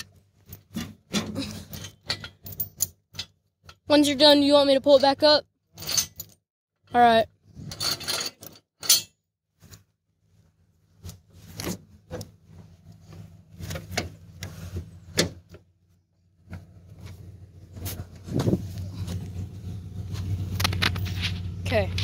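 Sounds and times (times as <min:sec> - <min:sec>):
tractor engine idling: 0:11.8 - 0:22.0.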